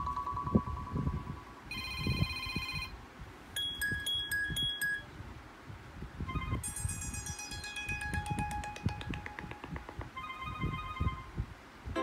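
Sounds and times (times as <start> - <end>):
pulsing ringtone: 0.0 - 3.0, 3.6 - 5.0, 6.3 - 11.3.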